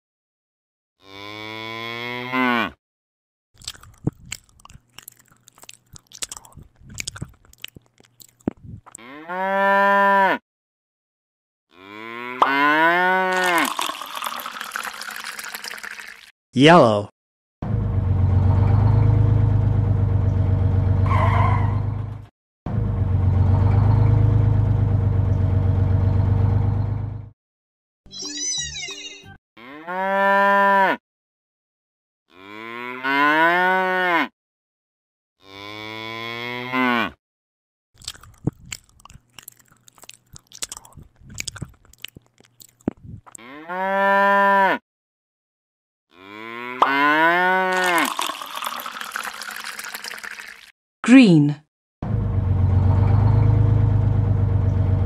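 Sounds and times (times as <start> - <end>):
cow mooing: 1.0 - 2.8, 9.0 - 10.4, 11.7 - 13.4, 29.6 - 31.0, 32.3 - 34.3, 35.4 - 37.2, 43.4 - 44.8, 46.1 - 47.9.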